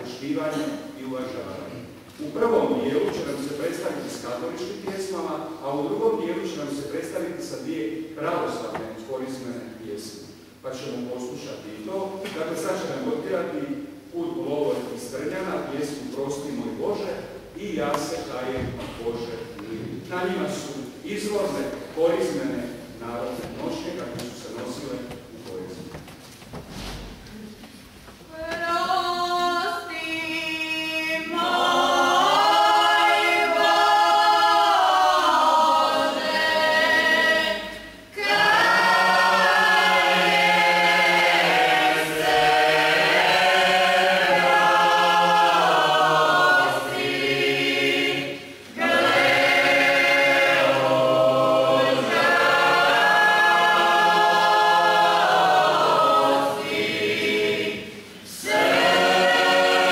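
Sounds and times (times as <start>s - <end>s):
choir singing a hymn a cappella: 28.3s - 59.9s.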